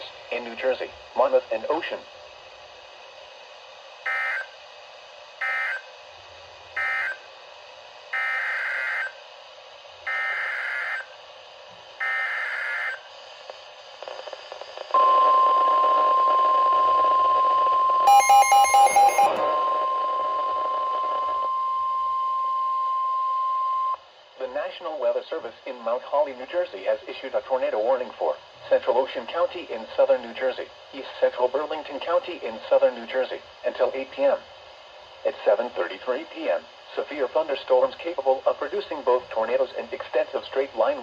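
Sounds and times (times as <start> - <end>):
steady warning alarm tone: 4.0 - 4.6, 5.4 - 5.9, 6.8 - 7.3, 8.1 - 9.2, 10.0 - 11.2, 12.0 - 13.1, 14.9 - 24.0
rapid alarm beeps: 4.1 - 4.6, 5.4 - 5.9, 6.8 - 7.3, 8.2 - 9.2, 10.1 - 11.1, 12.0 - 13.1, 15.0 - 24.0.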